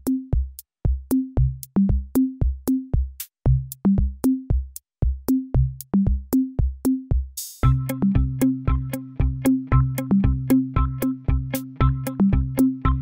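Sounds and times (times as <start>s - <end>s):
electronic drum machine beat: 0.0s - 13.0s
short bass notes: 7.6s - 13.0s.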